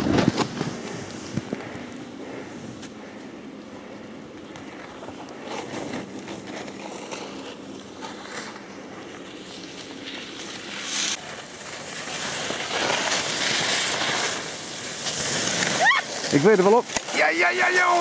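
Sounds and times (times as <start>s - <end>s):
skis scraping over snow: 0.0s - 18.0s
outdoor hiss: 7.0s - 18.0s.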